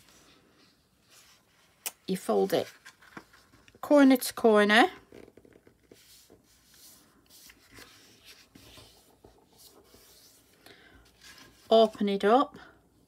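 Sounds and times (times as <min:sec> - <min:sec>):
paper folding rustle: 0:00.0 - 0:03.8, 0:05.0 - 0:12.2
soft creasing strokes: 0:05.1 - 0:12.1.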